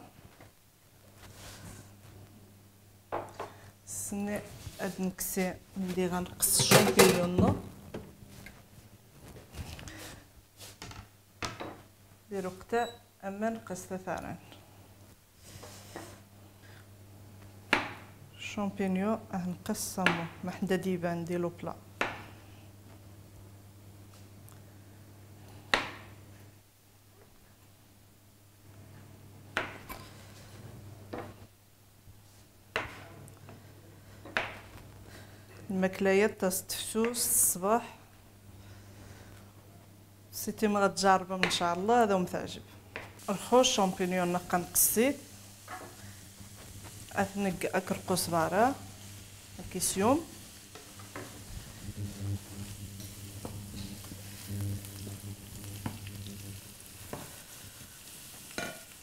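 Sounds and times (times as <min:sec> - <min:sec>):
faint steady hum: 0:00.0 - 0:59.0
mushrooms frying in a pan: 0:40.6 - 0:59.0
steady low hum: 0:42.2 - 0:57.9
wooden spoon tapping and scraping pan: 0:58.5 - 0:59.0.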